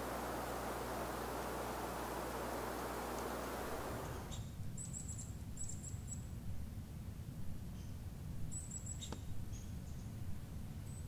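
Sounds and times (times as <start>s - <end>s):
steady hiss: 0.0s - 4.4s.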